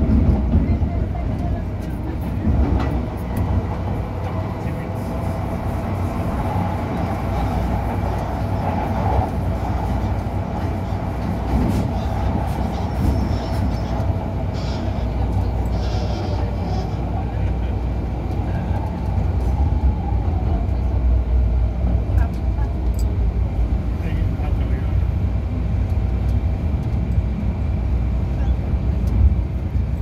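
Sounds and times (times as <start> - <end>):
train low rumble inside carriage: 0.0 - 30.0.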